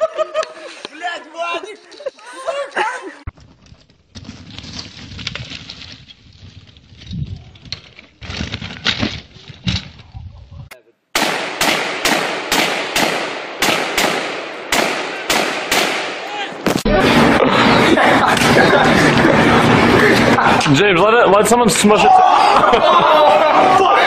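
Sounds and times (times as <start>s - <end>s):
bike and rider scuffling on ground: 1.6s - 10.7s
rapid gunshots with echo: 11.2s - 16.4s.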